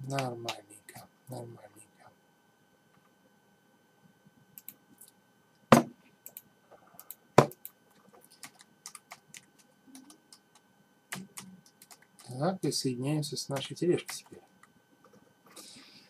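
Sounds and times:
computer keyboard typing: 0:07.0 - 0:12.4.

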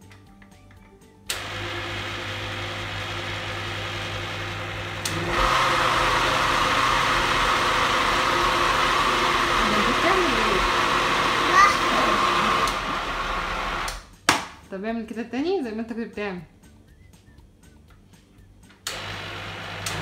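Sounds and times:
blender motor running: 0:01.3 - 0:14.0, 0:18.9 - 0:20.0
blender switch click: 0:19.8 - 0:20.0.

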